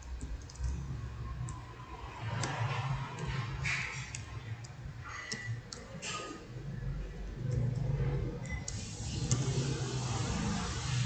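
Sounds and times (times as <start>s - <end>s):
computer keyboard key clicks: 0.0s - 0.8s, 2.3s - 6.2s.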